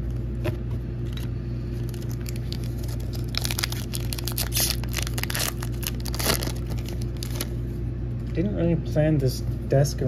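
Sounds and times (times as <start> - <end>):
steady low hum: 0.0 - 10.0
foil pack tearing and crinkling: 1.8 - 7.6.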